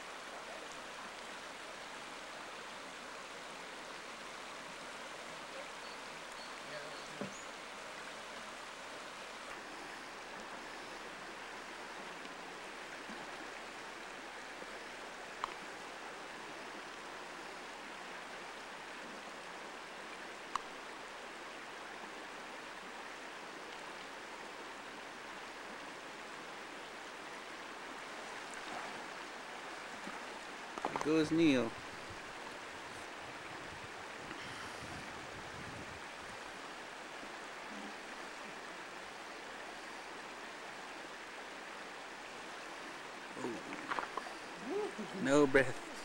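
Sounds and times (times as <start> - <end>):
creek water flowing: 0.0 - 46.0
faint clicks: 15.4 - 15.6.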